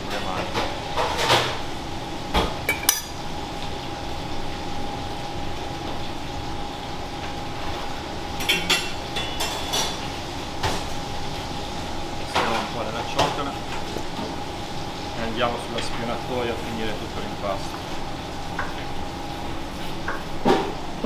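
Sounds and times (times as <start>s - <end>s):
kitchen hum: 0.0s - 21.0s
utensils and dishes clinking: 2.7s - 3.2s, 8.4s - 10.1s.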